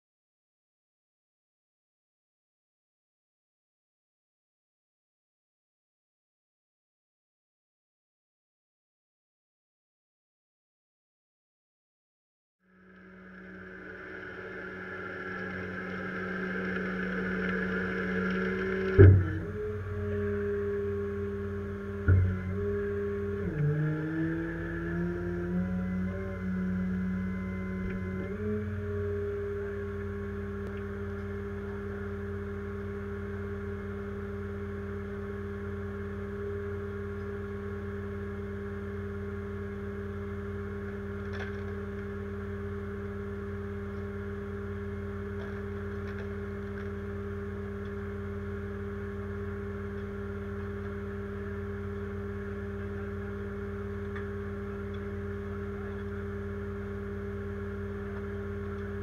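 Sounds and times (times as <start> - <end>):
truck engine idling: 12.9 - 20.2.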